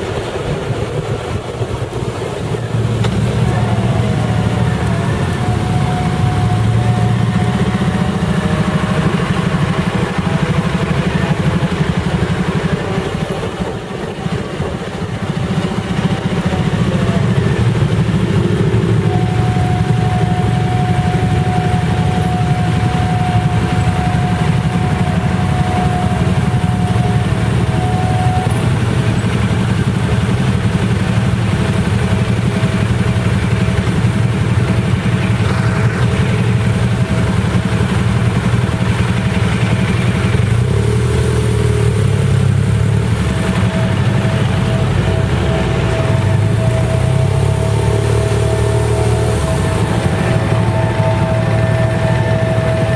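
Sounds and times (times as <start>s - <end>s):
motorcycle engines idling: 0.0s - 52.9s
faint high steady tone: 2.5s - 29.7s, 42.0s - 52.9s
faint pulsing tone: 2.5s - 30.2s, 41.5s - 52.9s.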